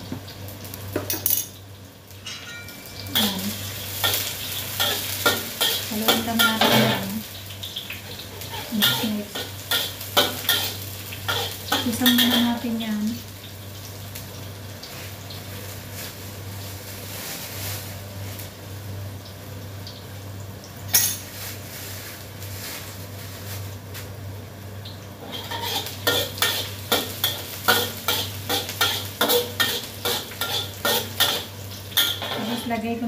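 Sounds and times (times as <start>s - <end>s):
garlic and onion sizzling in oil: 0.0s - 33.0s
metal spatula scraping a wok: 8.4s - 12.5s, 25.2s - 32.8s.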